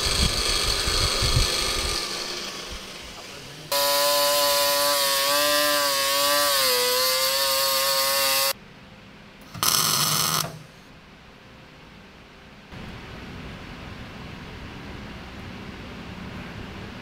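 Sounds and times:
angle grinder cutting steel: 0:00.0 - 0:08.6, 0:09.5 - 0:10.7
welding crackle: 0:09.4 - 0:10.6.

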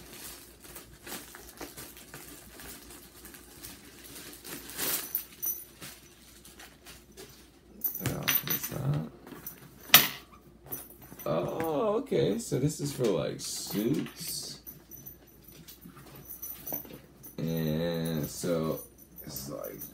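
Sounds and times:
plastic bag rustling and crinkling: 0:00.0 - 0:09.9.

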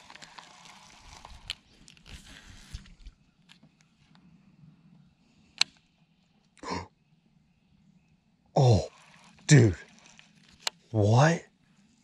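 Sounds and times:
rustling: 0:00.0 - 0:04.1, 0:08.9 - 0:10.9.

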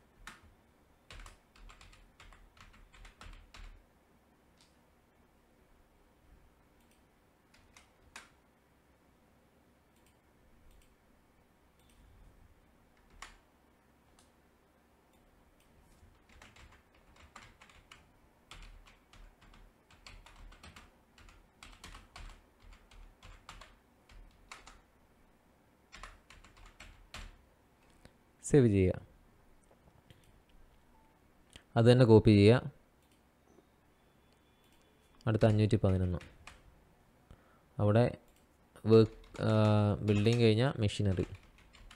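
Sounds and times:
computer keyboard typing: 0:00.2 - 0:00.5, 0:01.1 - 0:03.8, 0:06.8 - 0:08.4, 0:13.0 - 0:13.4, 0:16.1 - 0:24.8, 0:25.9 - 0:27.4, 0:34.6 - 0:36.6, 0:38.3 - 0:41.9.

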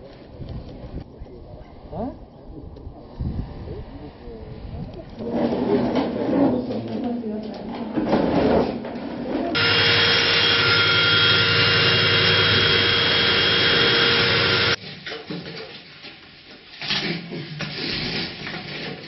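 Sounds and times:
core drill grinding concrete: 0:09.6 - 0:14.8.

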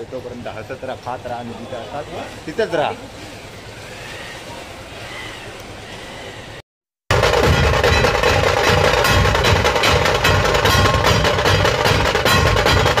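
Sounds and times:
fast drumming: 0:07.1 - 0:13.0.

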